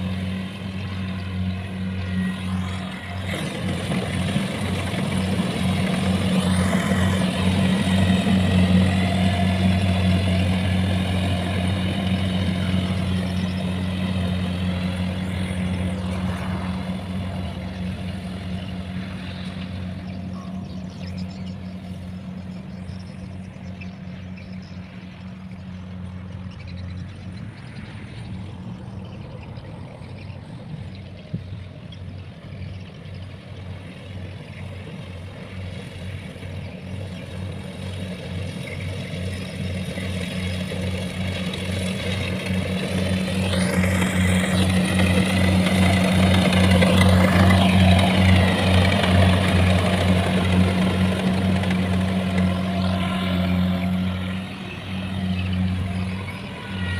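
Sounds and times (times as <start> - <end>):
rushing noise of threshing: 0.0 - 19.9, 37.0 - 56.9
harvester diesel engine running: 0.0 - 27.5, 30.5 - 56.9.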